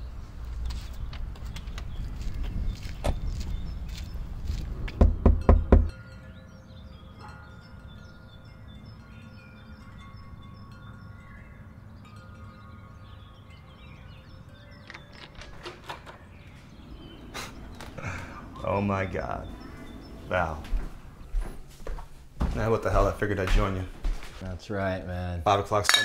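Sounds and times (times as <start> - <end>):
heavy thumps: 4.9 - 5.9
knocks: 4.9 - 5.9
metal wind chime ringing: 5.9 - 15.2.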